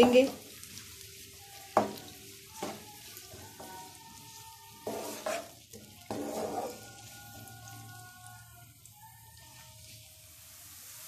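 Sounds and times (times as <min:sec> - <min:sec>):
onions sizzling in hot oil: 0:00.0 - 0:11.0
wooden spatula scraping pan: 0:02.6 - 0:07.8.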